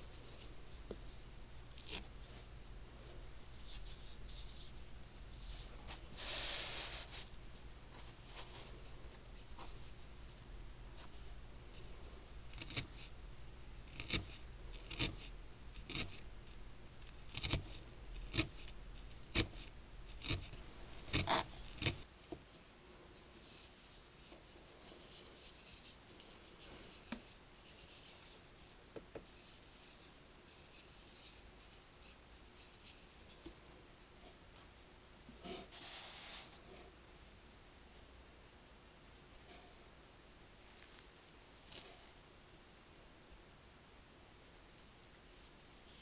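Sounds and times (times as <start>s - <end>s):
felting needle scratchy pokes: 12.5s - 13.1s, 13.9s - 16.2s, 17.1s - 22.1s
faint rubbing of wool: 35.4s - 36.9s.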